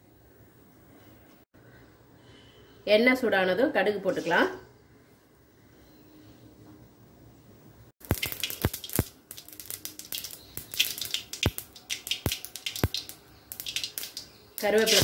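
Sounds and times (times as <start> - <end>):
mustard seeds popping in hot oil: 8.0 - 15.0.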